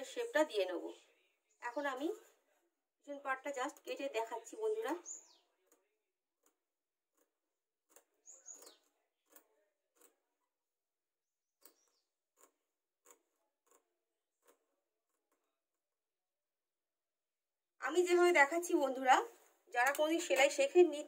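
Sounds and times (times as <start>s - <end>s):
scissors snipping fabric: 5.1s - 10.5s, 11.6s - 16.0s.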